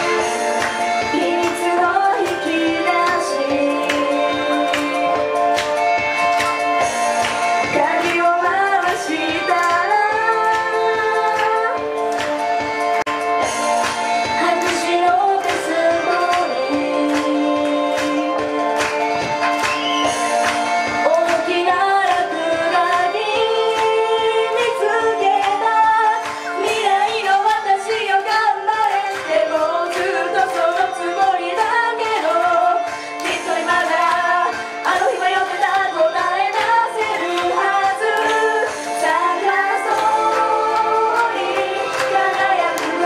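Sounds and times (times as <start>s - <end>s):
women singing pop song: 0.0s - 5.8s, 7.5s - 12.0s, 14.2s - 18.7s, 21.0s - 43.0s
backing music with steady beat: 0.0s - 43.0s.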